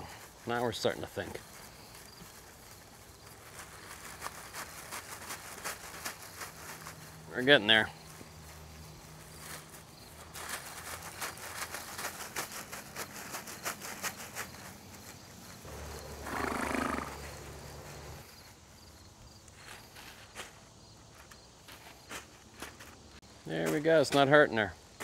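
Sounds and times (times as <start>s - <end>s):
horse snorting: 15.7s - 18.2s.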